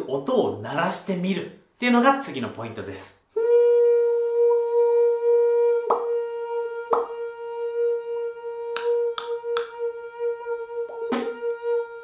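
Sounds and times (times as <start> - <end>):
nasal hum on high note: 3.4 - 12.0.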